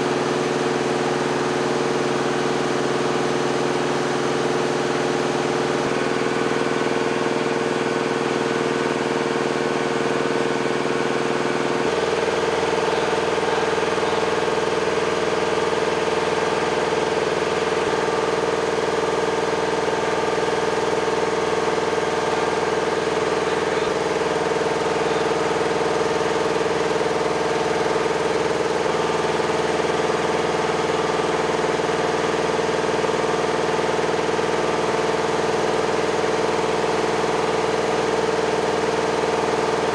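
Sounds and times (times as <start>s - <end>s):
engine idling: 0.0s - 39.9s
noisy background: 0.0s - 39.9s.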